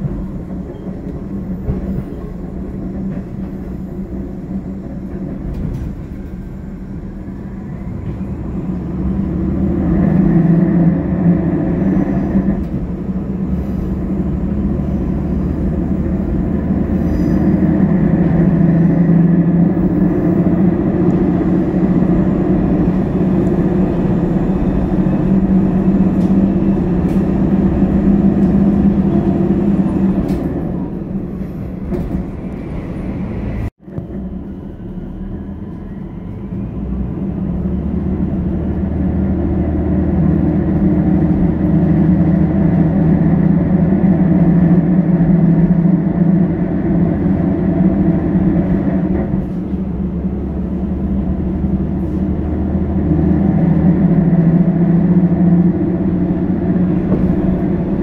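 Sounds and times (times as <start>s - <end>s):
diesel engine drone: 0.0s - 58.0s
quiet station ambience: 0.0s - 58.0s
wheel-on-rail noise: 0.0s - 58.0s.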